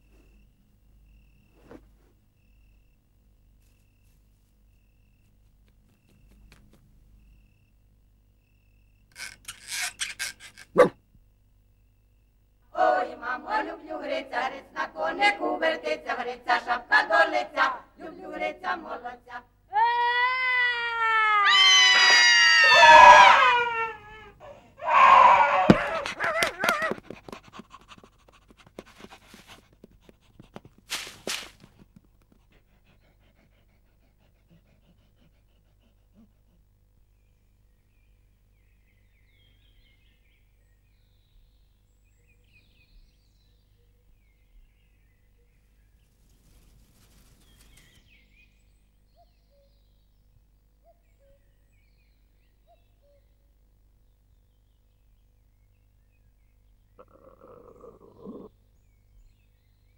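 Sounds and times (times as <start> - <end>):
faint clicks and rustles: 3.6 - 7.1
people wailing and crying: 19.8 - 27.0
faint crackling rustle: 28.7 - 32.5, 46.0 - 48.1
birds chirping: 55.7 - 59.9.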